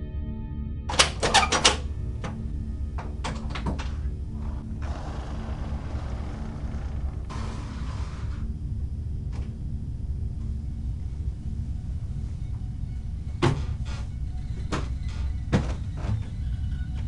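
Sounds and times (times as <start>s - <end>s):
hissing scuffle: 4.8s - 8.4s.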